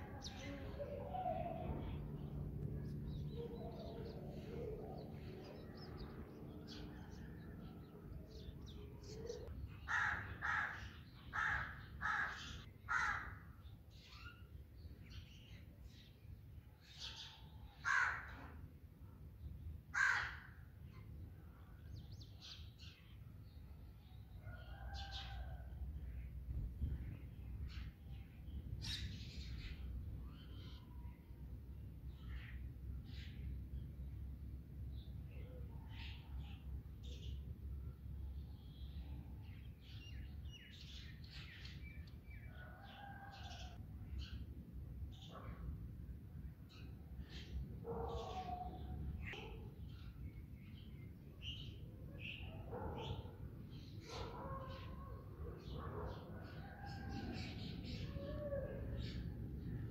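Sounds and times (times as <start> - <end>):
harsh bird calls: 0.0 - 14.4.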